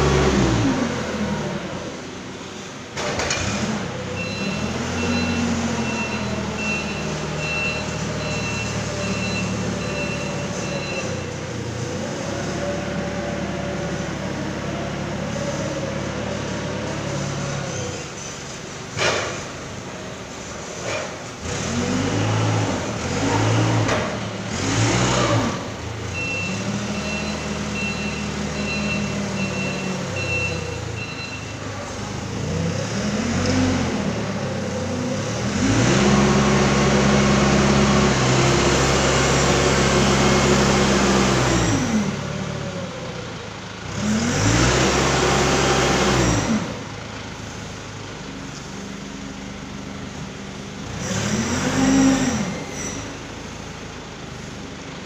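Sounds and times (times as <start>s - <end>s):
forklift engine revving: 0.0s - 55.0s
reversing beeper: 4.2s - 11.4s, 26.1s - 31.8s.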